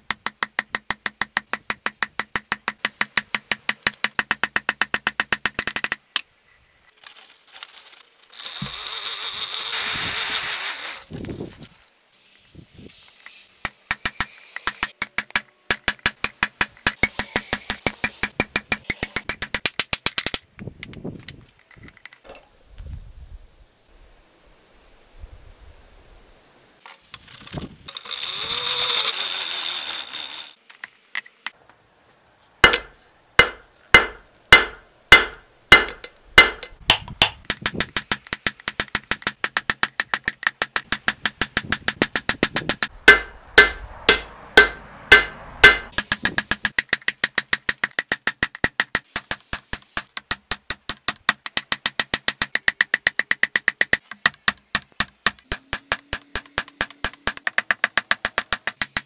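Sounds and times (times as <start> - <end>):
rustling noise: 6.5 - 13.6, 26.8 - 28.0.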